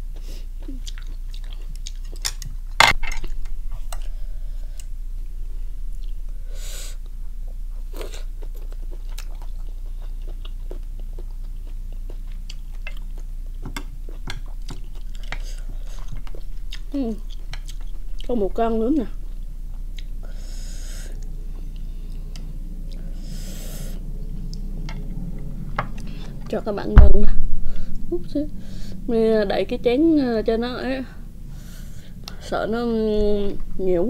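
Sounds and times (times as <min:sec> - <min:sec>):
chewing and crunching: 0:00.0 - 0:03.4, 0:07.9 - 0:18.4.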